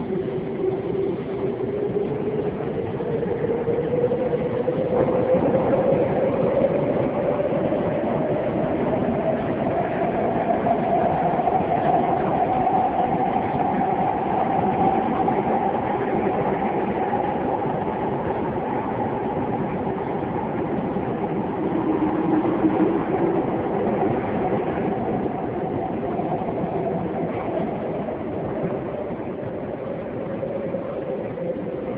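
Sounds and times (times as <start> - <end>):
faint train whine: 0.0 - 31.9
subway train rumble: 0.0 - 31.9.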